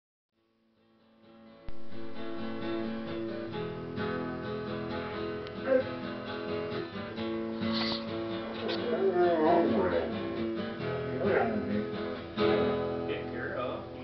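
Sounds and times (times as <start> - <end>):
acoustic guitar strumming: 0.8 - 14.0.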